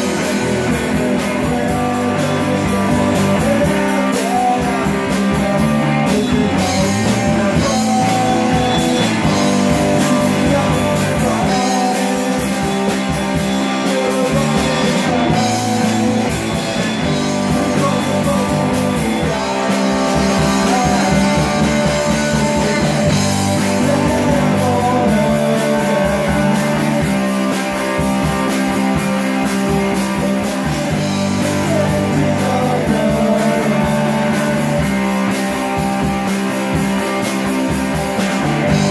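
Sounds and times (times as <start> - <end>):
bass guitar: 0.0 - 38.9
drums: 0.0 - 38.9
electric guitar: 0.0 - 38.9.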